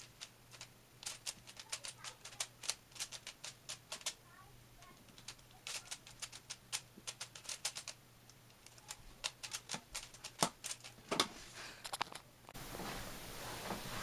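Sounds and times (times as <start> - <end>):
puzzle cube layers clicking: 0.0 - 4.2, 5.0 - 8.0, 8.6 - 11.0.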